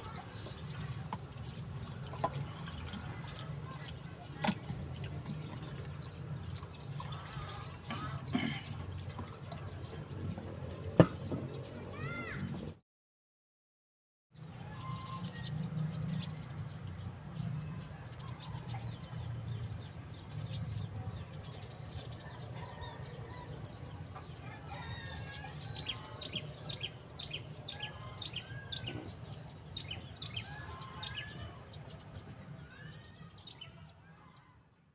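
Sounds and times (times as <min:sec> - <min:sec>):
birds calling: 0:00.0 - 0:12.8.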